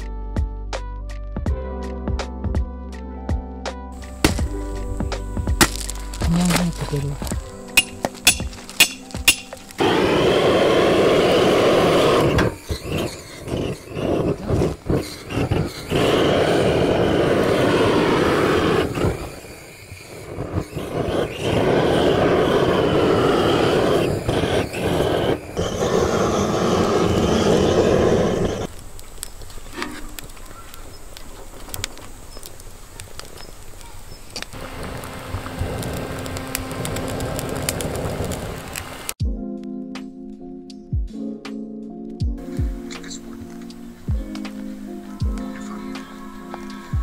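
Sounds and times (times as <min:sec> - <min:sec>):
fire crackling: 0:03.9 - 0:39.2, 0:42.3 - 0:47.0
gas torch hissing: 0:04.0 - 0:39.2.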